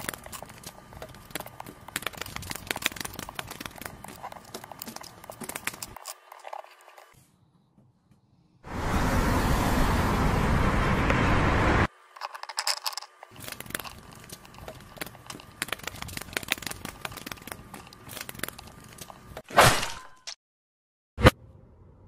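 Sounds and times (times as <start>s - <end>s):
plastic toy pieces clattering: 12.2s - 19.2s.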